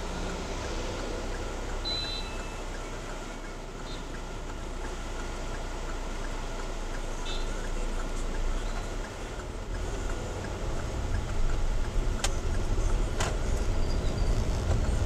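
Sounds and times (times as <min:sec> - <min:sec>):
car engine rumble: 0:00.0 - 0:15.0
road noise: 0:00.0 - 0:15.0
brief high tone: 0:01.8 - 0:02.7.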